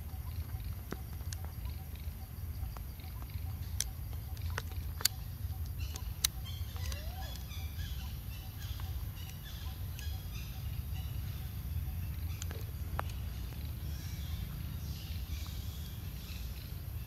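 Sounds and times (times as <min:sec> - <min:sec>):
high chirping animal calls: 0:01.6 - 0:17.0
sharp clicks: 0:03.1 - 0:07.6.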